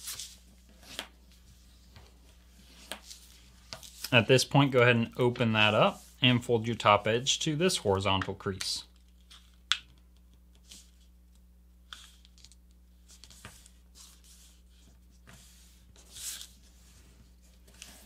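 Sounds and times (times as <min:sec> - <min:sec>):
paper rustling and folding: 0:11.9 - 0:18.0.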